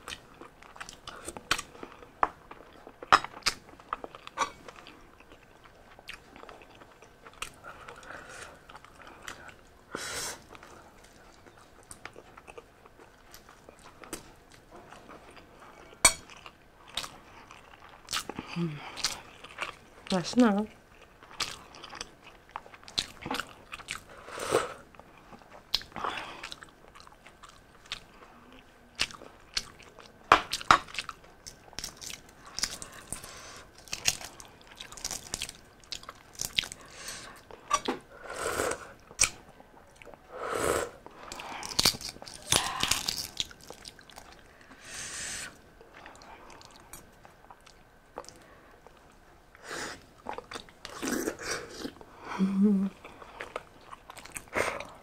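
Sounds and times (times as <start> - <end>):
chewing and smacking: 0.0 - 9.8, 10.5 - 20.2, 20.9 - 24.1, 24.8 - 38.0, 41.0 - 44.8, 45.8 - 49.3, 50.1 - 52.0, 53.0 - 55.0
eggshell crackling as peeled: 41.2 - 44.3.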